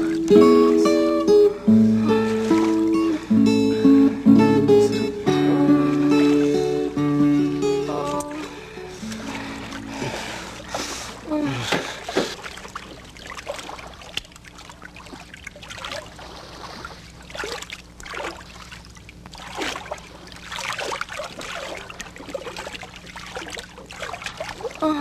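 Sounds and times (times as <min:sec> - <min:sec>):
paddles splashing in water: 0:00.0 - 0:03.8, 0:04.8 - 0:25.0
low steady hum: 0:00.0 - 0:25.0
water trickling off paddles: 0:00.0 - 0:25.0.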